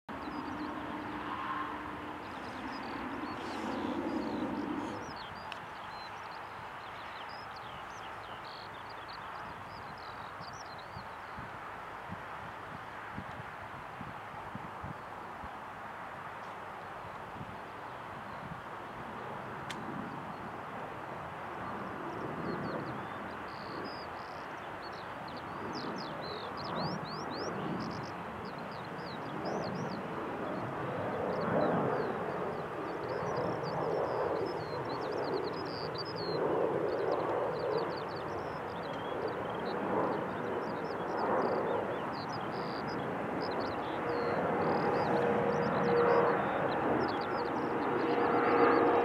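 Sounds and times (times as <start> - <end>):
distant jet engine roar: 0.1 - 49.0
small birds chirping: 2.1 - 11.5, 21.6 - 48.8.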